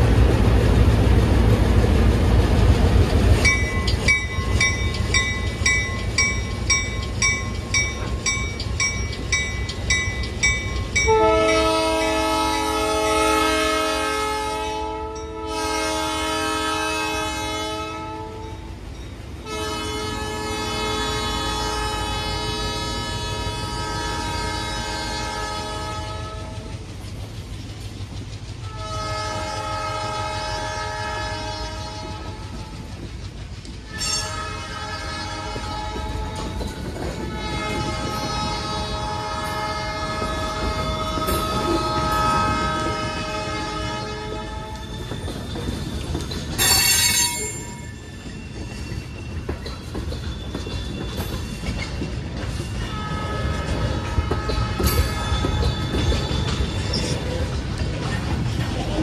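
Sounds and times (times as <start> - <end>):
wheels clacking on rails: 0.0 - 59.0
locomotive air horn blowing: 11.1 - 18.7, 19.4 - 26.7, 28.7 - 32.7, 33.9 - 45.0, 52.9 - 55.6.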